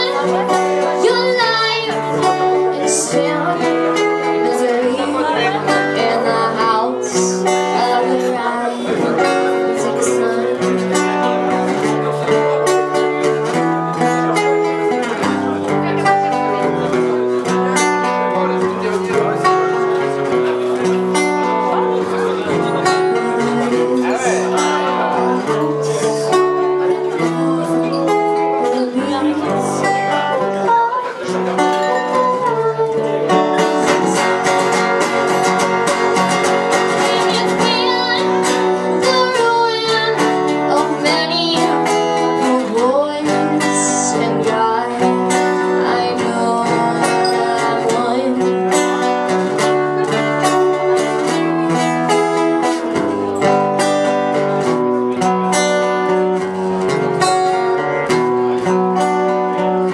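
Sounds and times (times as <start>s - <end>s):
woman singing: 0.0s - 11.1s, 23.2s - 31.2s, 32.0s - 34.7s, 36.9s - 49.8s
acoustic guitars strumming: 0.0s - 59.9s.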